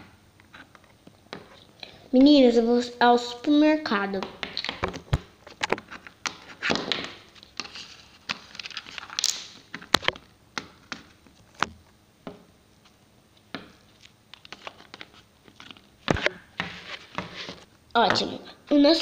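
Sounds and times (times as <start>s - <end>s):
plastic toys tapping and clicking: 4.2s - 7.7s.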